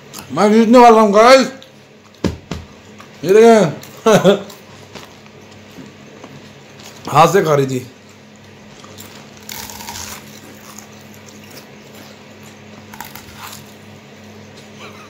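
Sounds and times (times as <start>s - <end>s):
potato chips crunching: 8.6s - 13.9s.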